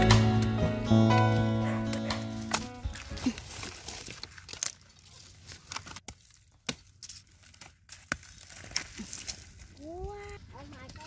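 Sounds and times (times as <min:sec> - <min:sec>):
dry leaves rustling: 0:00.0 - 0:11.0
machete chopping into soil: 0:01.3 - 0:04.7.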